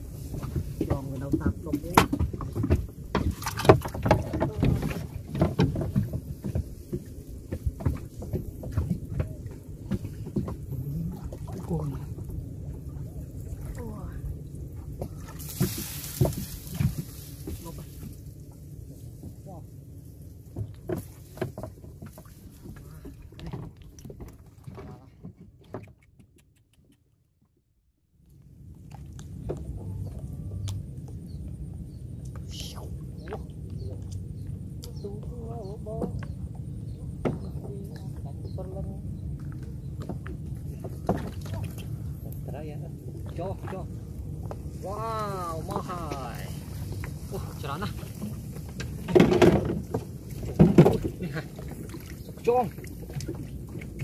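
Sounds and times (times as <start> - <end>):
reeds scraping along boat hull: 0.0 - 12.2, 15.0 - 19.6, 20.5 - 25.2, 43.4 - 54.0
low rumble: 0.0 - 26.1, 28.1 - 54.0
knocks and rustles: 0.2 - 10.8, 15.0 - 18.2, 20.5 - 26.0, 48.0 - 51.2.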